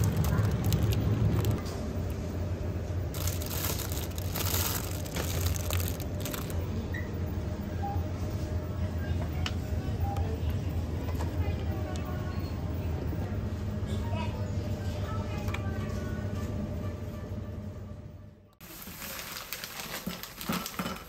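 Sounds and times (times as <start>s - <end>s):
plastic packaging crinkling: 0.0s - 1.6s, 3.1s - 6.6s, 18.6s - 21.0s
steady low hum: 0.0s - 18.6s.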